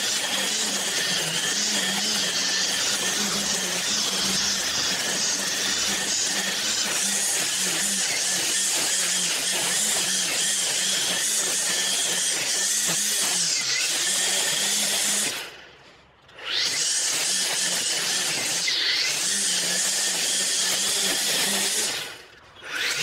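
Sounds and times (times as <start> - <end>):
string trimmer cutting grass: 0.0 - 23.0.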